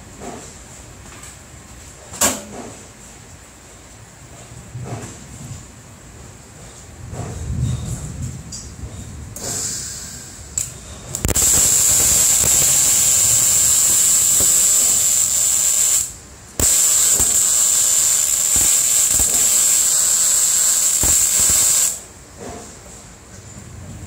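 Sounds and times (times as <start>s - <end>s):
welding arc sizzling: 9.4s - 22.2s
welding spatter pops: 10.6s - 22.0s.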